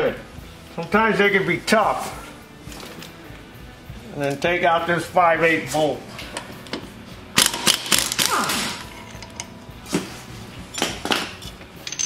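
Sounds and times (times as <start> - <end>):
metallic clicks and clanks: 6.2 - 9.6.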